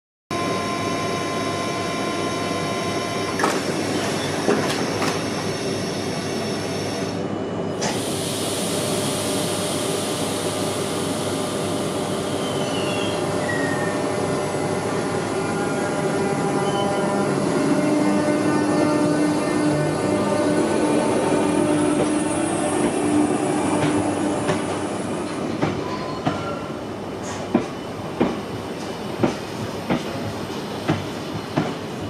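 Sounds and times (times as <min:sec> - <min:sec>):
train electrical hum and whine: 0:00.3 - 0:32.0
train doors knocking shut: 0:29.2 - 0:31.9.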